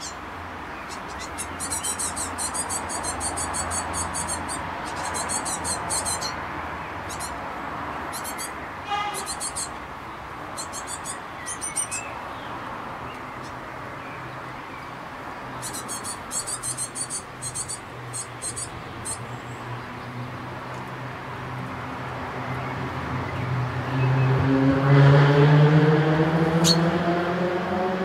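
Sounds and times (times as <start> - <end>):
small bird chirping: 0.0 - 6.4, 7.0 - 7.4, 8.1 - 8.6, 9.2 - 9.8, 10.5 - 13.6, 15.5 - 19.6.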